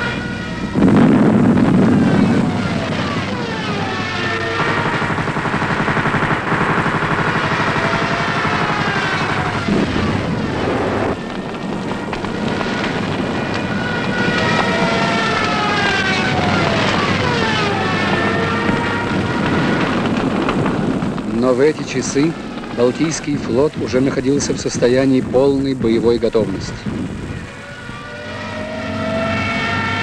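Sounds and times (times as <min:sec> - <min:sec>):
propeller aircraft engines droning: 0:00.0 - 0:30.0
steady low rumble: 0:00.0 - 0:30.0.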